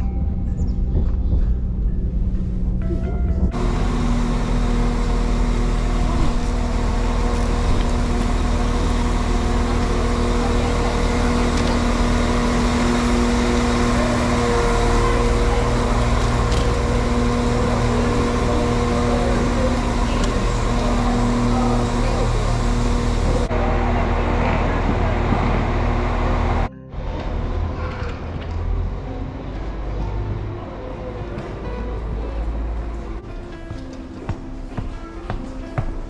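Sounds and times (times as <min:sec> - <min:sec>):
bustle of passengers: 0:00.0 - 0:36.0
diesel train engine idling: 0:01.5 - 0:27.8.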